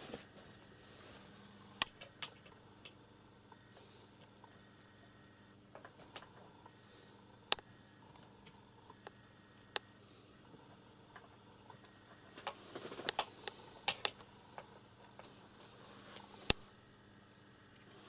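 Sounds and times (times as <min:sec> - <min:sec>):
low steady hum: 0:00.0 - 0:18.0
kittens scuffling with clicks: 0:11.1 - 0:16.4.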